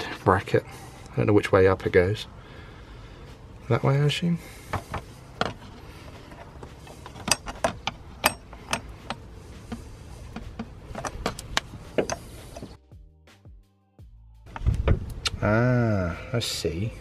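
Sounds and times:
plastic and metal parts clicking: 0:06.3 - 0:12.7.

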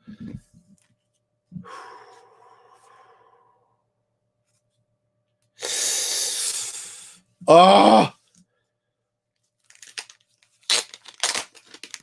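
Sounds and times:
packaging rustling: 0:09.6 - 0:12.0.

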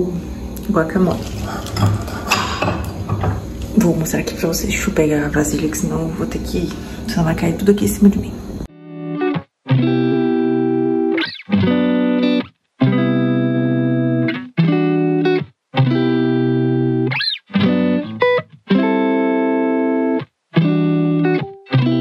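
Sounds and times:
background music of held chords: 0:08.7 - 0:22.0.

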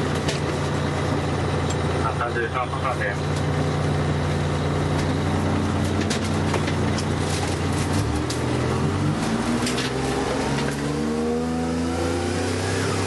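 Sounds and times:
rattles and clicks in cab: 0:00.0 - 0:03.7, 0:04.5 - 0:08.6
truck engine accelerating: 0:00.0 - 0:13.0.

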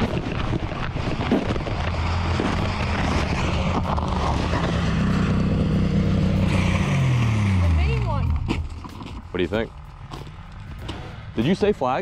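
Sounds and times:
low engine drone: 0:00.0 - 0:12.0
footsteps crunching in snow: 0:08.4 - 0:11.5.

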